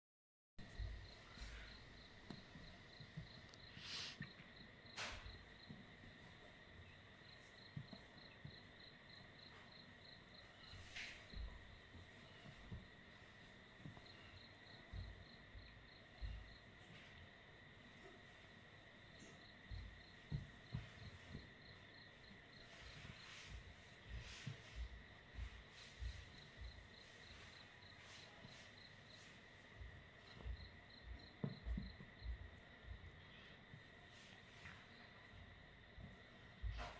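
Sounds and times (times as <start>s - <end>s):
soft low thumps: 0.6s - 3.5s, 10.0s - 17.7s, 19.2s - 28.0s, 29.6s - 34.0s
insect chirping: 0.6s - 36.9s
soft rustles: 19.3s - 30.6s.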